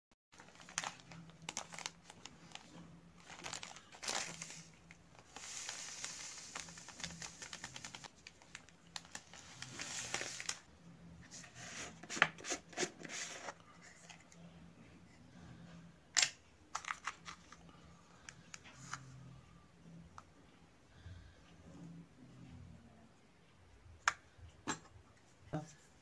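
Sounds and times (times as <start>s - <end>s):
plastic packet crinkling: 0.4s - 10.7s
powder pouring into plastic bowl: 3.3s - 10.6s.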